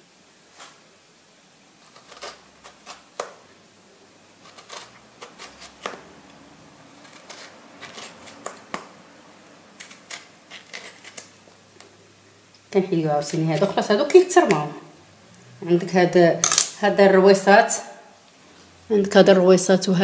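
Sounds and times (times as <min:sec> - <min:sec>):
knife slicing lemons: 0:04.4 - 0:06.3.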